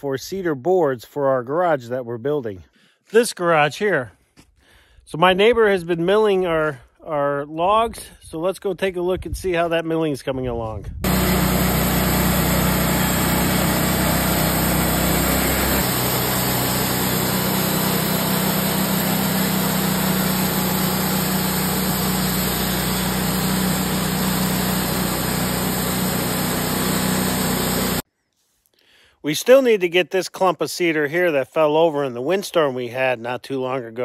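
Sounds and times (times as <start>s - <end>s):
bandsaw mill cutting log: 11.0s - 28.0s.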